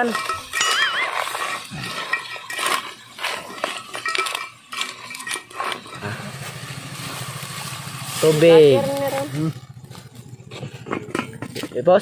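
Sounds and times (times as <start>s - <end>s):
metal spoon scraping metal pot: 0.0s - 11.9s.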